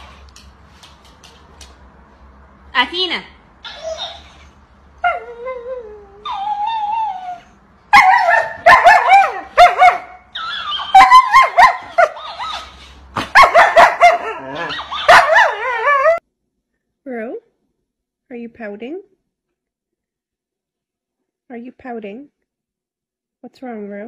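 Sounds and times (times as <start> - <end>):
dog howling and yowling: 5.0 - 12.8, 13.6 - 16.2.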